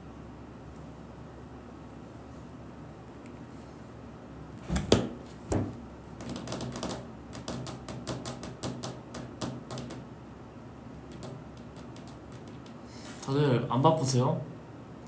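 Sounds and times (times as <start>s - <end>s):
sharp knocks: 4.6s - 10.1s, 11.1s - 12.8s
quick light clicks and taps: 11.1s - 12.8s.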